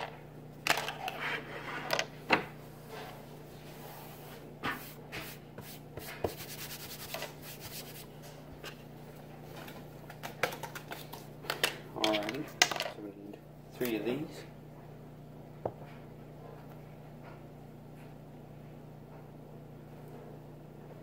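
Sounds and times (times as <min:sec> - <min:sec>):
steady low hum: 0:00.0 - 0:21.0
rubbing and scraping: 0:00.8 - 0:02.1, 0:02.8 - 0:08.8.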